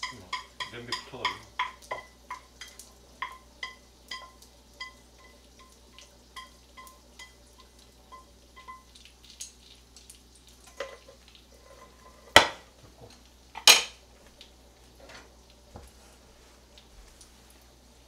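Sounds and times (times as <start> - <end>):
chopsticks tapping metal pot: 0.0 - 5.8, 6.4 - 8.8.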